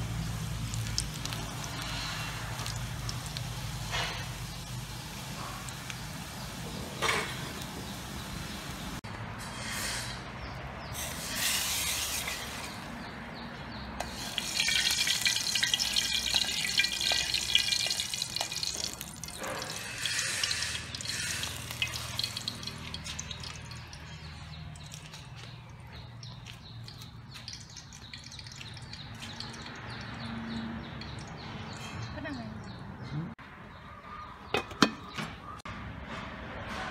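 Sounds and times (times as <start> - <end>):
watery sizzling and splashing: 0.0 - 9.0, 11.0 - 13.1, 14.0 - 32.0
liquid sounds from pot: 14.0 - 31.8.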